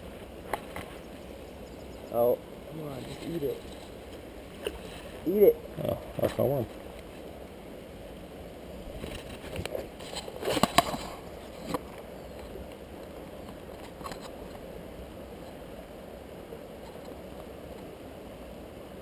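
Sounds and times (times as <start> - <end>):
low outdoor hiss: 0.0 - 19.0
sharp knocks and rustles: 8.9 - 14.6.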